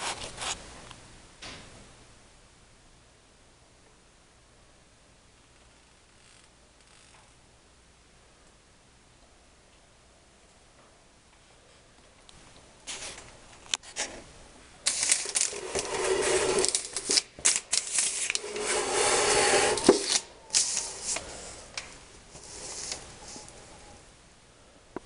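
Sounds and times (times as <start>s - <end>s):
rustling handling noise: 12.4s - 24.0s.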